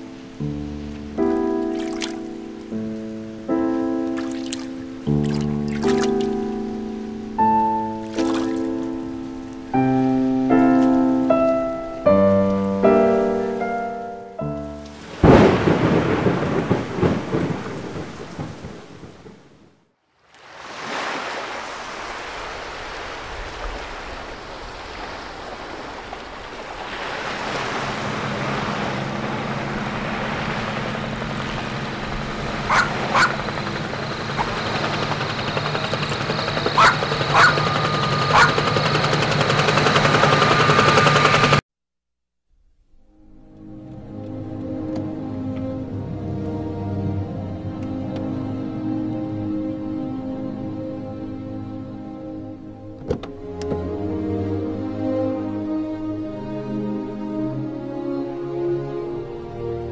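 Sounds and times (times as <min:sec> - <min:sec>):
heavy rain: 0:14.9 - 0:37.9
thunderclap: 0:15.1 - 0:19.8
helicopter rushing hum: 0:28.1 - 0:41.6.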